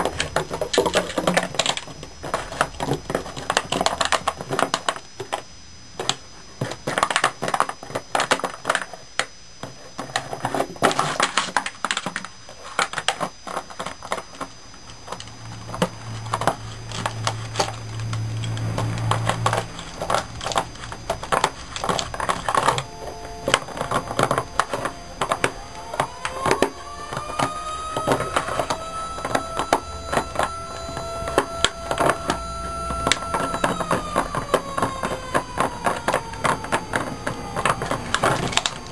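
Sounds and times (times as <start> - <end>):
steady pitched hum: 0.0 - 38.9.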